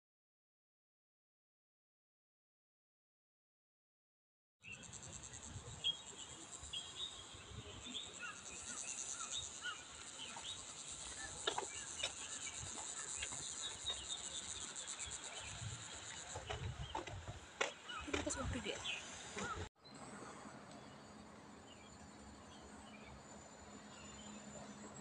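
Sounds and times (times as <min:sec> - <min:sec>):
insects buzzing: 0:04.6 - 0:19.7
birds chirping: 0:04.6 - 0:20.0.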